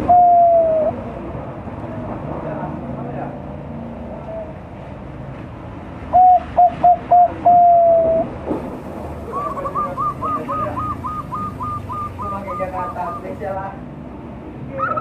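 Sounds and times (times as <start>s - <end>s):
dove cooing: 0.0s - 1.1s, 6.1s - 8.3s, 9.2s - 13.4s.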